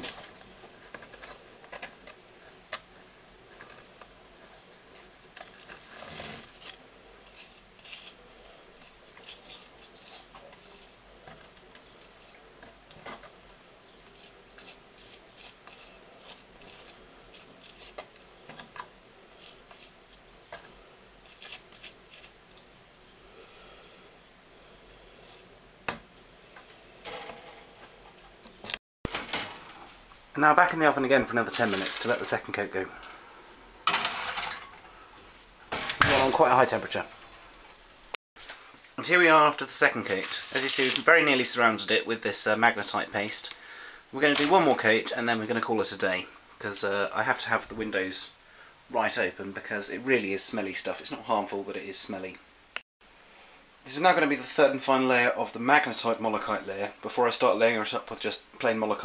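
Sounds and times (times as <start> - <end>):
spatula scraping and tapping: 8.8 - 22.6.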